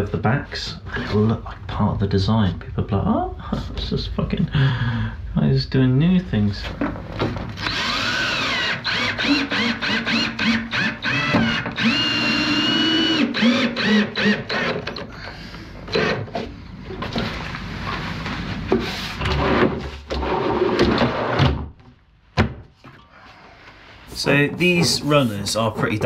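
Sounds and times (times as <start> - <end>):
cordless drill bursts: 7.6 - 14.9.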